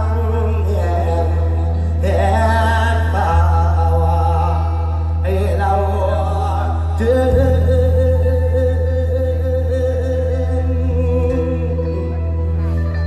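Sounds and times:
man singing through loudspeakers: 0.0s - 13.0s
steady low drone: 0.0s - 13.0s.

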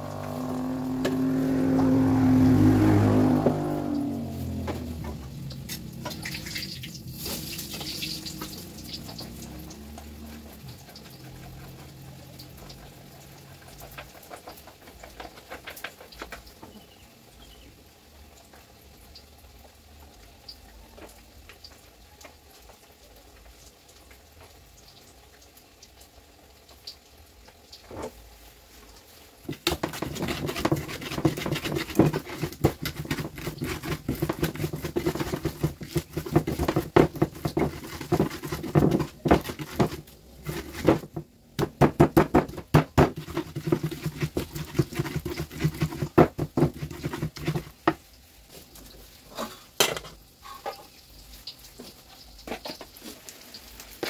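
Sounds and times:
pestle grinding in stone mortar: 7.6s - 15.9s, 29.5s - 48.0s.

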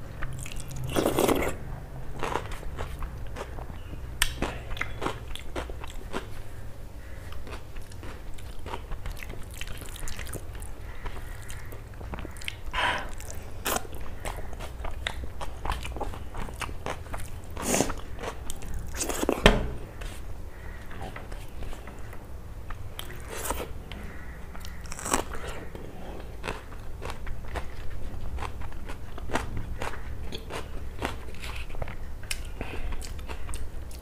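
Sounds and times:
steady low hum: 0.0s - 34.0s
person chewing and biting: 2.2s - 6.4s, 7.3s - 10.7s, 11.4s - 19.4s, 24.6s - 34.0s.

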